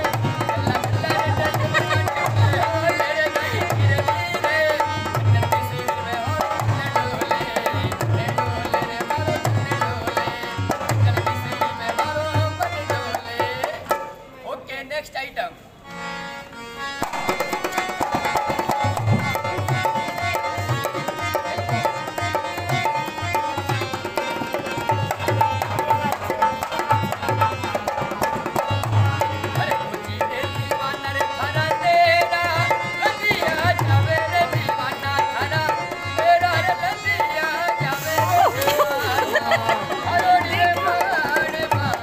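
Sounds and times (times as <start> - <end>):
harmonium reed tones: 15.8 - 41.7.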